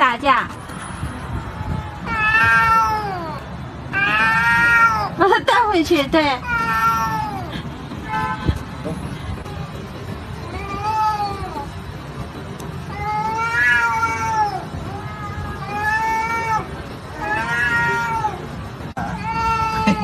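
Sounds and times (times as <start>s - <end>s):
cat yowling: 1.6s - 5.2s, 6.4s - 7.6s, 12.9s - 20.0s.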